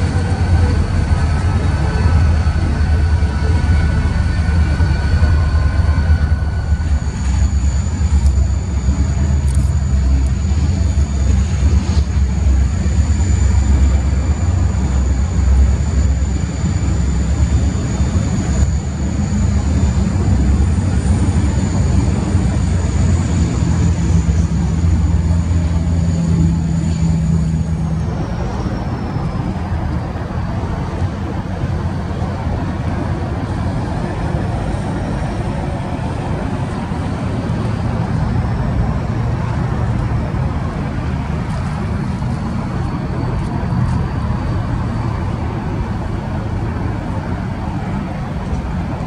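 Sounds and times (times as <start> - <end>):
high-pitched whine: 0.0 - 49.0
locomotive engine rumble: 0.0 - 49.0.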